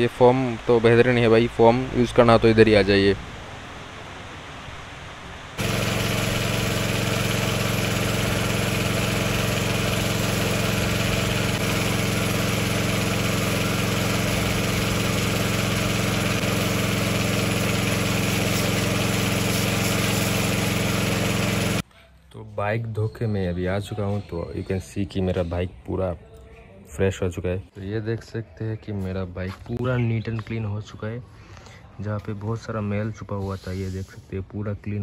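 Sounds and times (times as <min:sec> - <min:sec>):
pressure washer motor humming: 0:05.6 - 0:21.8
water jet hissing: 0:05.6 - 0:21.8.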